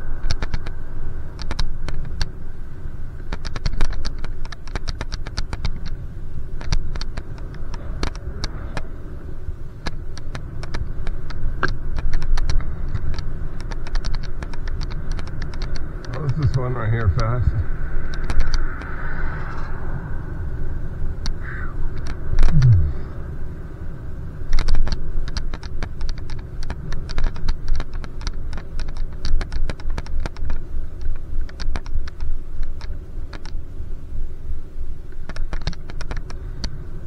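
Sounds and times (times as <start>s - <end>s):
bicycle clicks and rattles: 0.0s - 2.4s, 3.1s - 9.0s, 9.8s - 16.9s, 18.0s - 18.9s, 24.4s - 33.7s, 35.1s - 36.8s
wind and road rumble: 0.0s - 37.0s
short falling tone: 22.4s - 23.1s.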